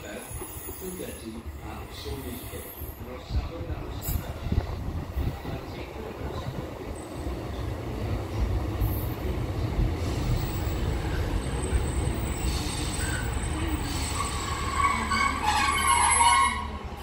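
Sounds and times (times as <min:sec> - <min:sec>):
train engine and wheels rumbling: 0:00.0 - 0:17.0
high-pitched brake squeal: 0:11.1 - 0:16.8.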